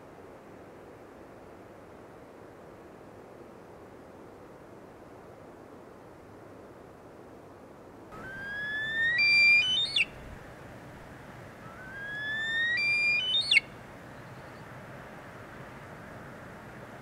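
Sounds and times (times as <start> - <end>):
bird singing rising whistles: 8.2 - 10.2, 11.6 - 14.6.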